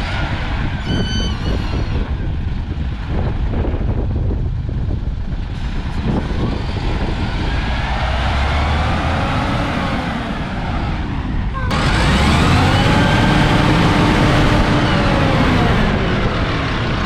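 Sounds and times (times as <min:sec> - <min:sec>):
truck diesel engine running: 0:00.0 - 0:17.0
rising engine whine: 0:05.6 - 0:17.0.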